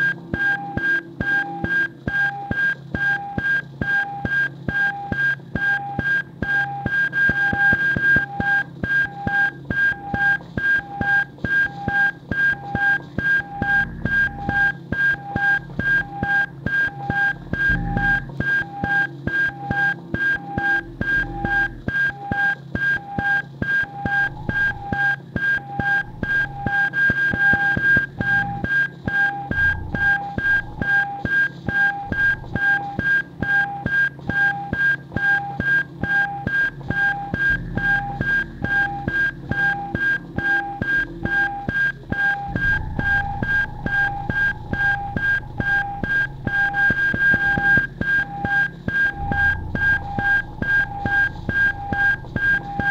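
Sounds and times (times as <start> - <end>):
lo-fi electronic music: 17.3 - 18.4, 29.6 - 30.8, 37.3 - 39.9, 42.5 - 52.9.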